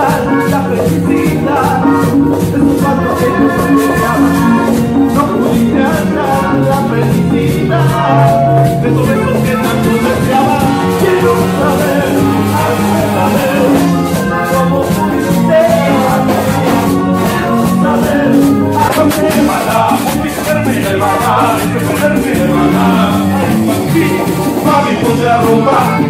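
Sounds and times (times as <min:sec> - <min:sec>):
congas: 0:00.0 - 0:26.0
live band playing: 0:00.0 - 0:26.0.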